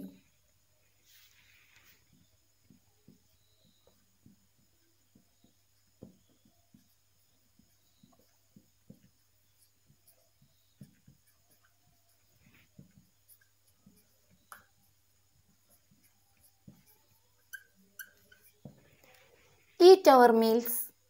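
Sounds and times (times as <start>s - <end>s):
marker pen writing on glass: 1.4s - 19.8s
marker tip squeaks: 15.6s - 18.8s.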